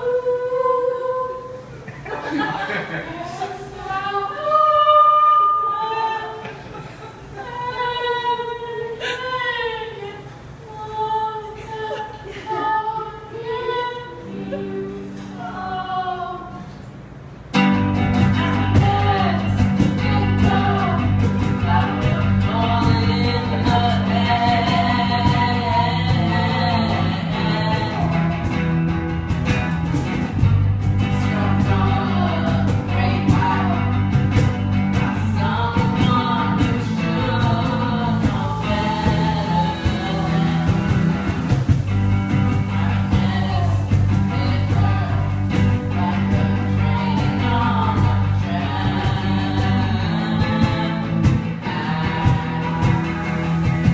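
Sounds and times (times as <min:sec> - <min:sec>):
bass guitar: 0:17.5 - 0:53.9
electric guitar: 0:17.5 - 0:53.9
boy singing: 0:18.4 - 0:28.4, 0:31.1 - 0:34.0, 0:35.0 - 0:41.2, 0:42.5 - 0:53.9.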